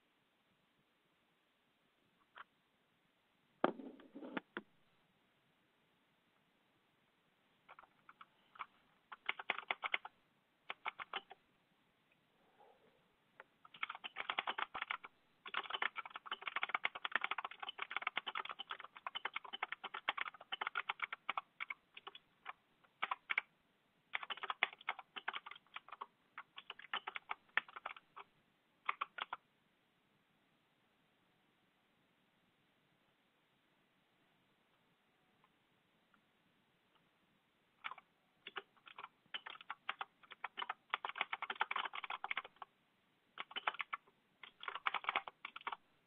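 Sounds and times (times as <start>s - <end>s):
typing on computer keyboard: 7.7s - 10.1s, 10.7s - 11.4s, 13.6s - 23.5s, 24.1s - 29.4s, 37.8s - 42.7s, 43.4s - 45.8s.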